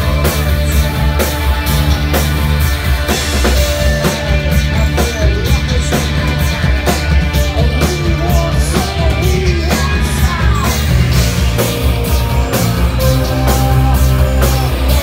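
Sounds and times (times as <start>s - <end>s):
rock band playing: 0.0s - 15.0s.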